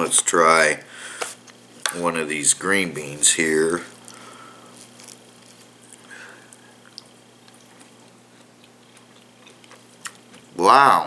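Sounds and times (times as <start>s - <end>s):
chewing green bean: 3.9s - 10.6s.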